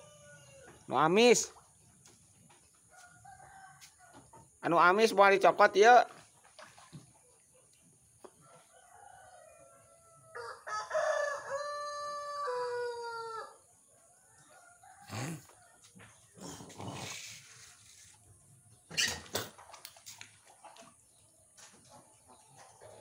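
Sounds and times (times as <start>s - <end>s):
rooster crowing: 8.5s - 13.6s, 14.4s - 15.5s.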